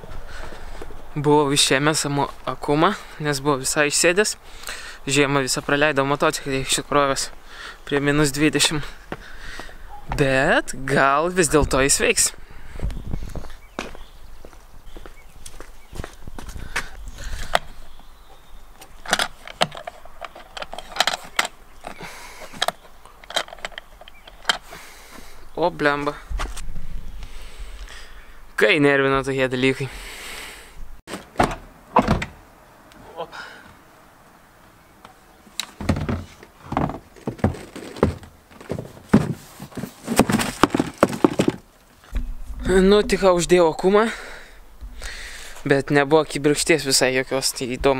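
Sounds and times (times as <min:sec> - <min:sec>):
light handling noise: 0:15.4 - 0:24.8
seat clunking and rattling: 0:31.1 - 0:32.4, 0:35.6 - 0:42.8.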